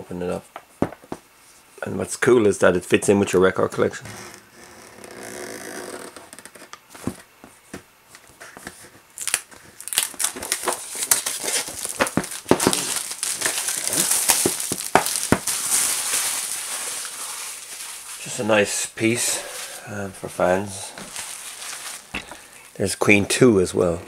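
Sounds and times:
plastic wrap crinkling: 8.3 - 23.1
blade slitting plastic wrap: 9.2 - 18.0.

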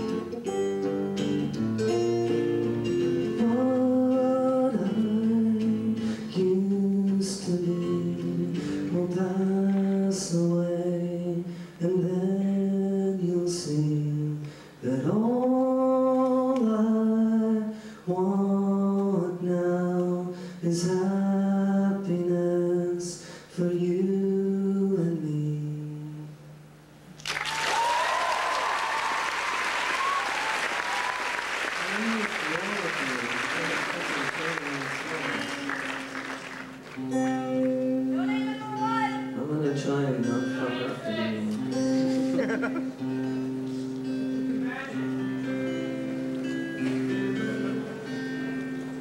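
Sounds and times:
acoustic guitar: 0.0 - 27.0, 30.9 - 49.0
man singing wordless melody: 3.2 - 26.4, 37.2 - 42.5, 46.5 - 48.4
audience applause: 27.2 - 37.1.

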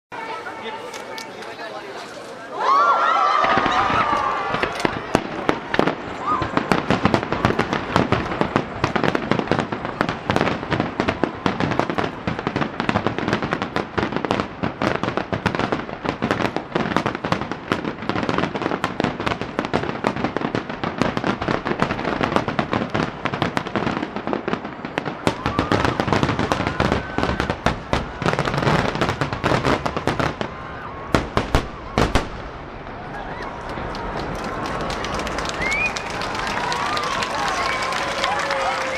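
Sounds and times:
fireworks bursts and crackling: 3.2 - 38.9.

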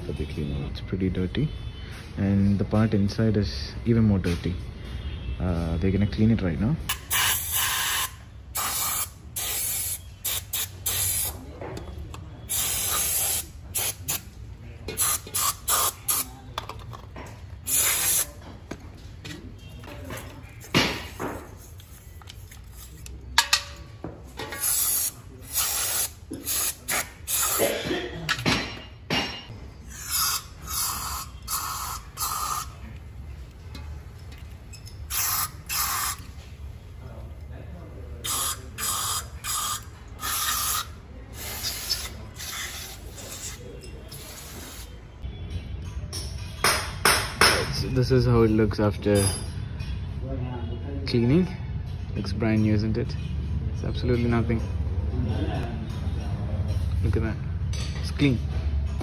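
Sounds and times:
aerosol spray hissing: 30.0 - 32.7, 38.2 - 40.8.

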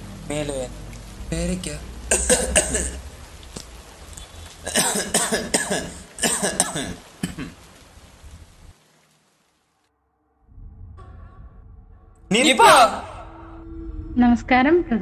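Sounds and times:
man coughing: 2.1 - 3.0, 4.7 - 7.6.

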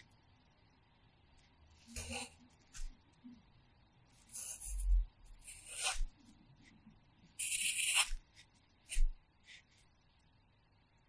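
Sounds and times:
pencil scratching on paper: 1.9 - 2.9, 4.2 - 6.2, 7.4 - 9.8.

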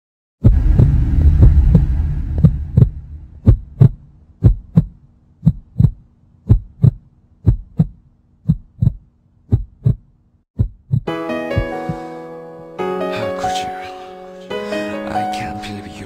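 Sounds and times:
loud low rumble: 0.4 - 4.8
heartbeat thumps: 0.4 - 12.0.

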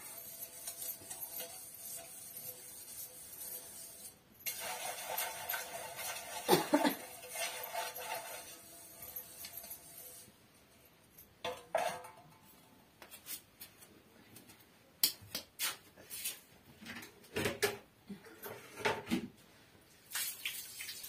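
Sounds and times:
pan and utensils clinking: 0.0 - 10.3.

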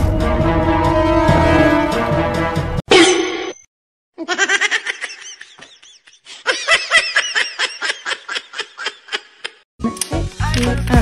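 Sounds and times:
person laughing: 4.2 - 9.6.

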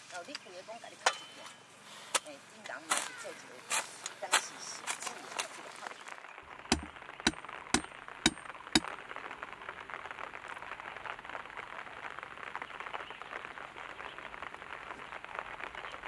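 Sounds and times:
fine crackling patter: 0.0 - 7.2.

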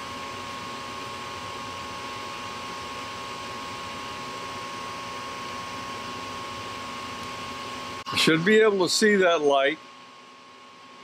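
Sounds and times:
furnace motor humming with whine: 0.0 - 11.0.

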